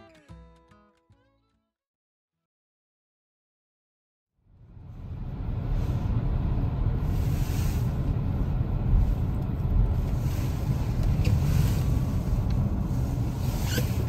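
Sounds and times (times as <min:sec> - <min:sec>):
car engine and tyre rumble: 0:04.4 - 0:14.0.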